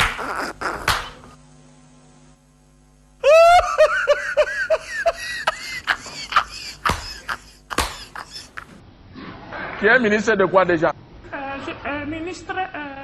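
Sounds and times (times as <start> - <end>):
hand claps: 0.0 - 1.2, 6.8 - 8.3
faint steady hum: 0.0 - 13.0
man laughing loudly: 3.2 - 8.8.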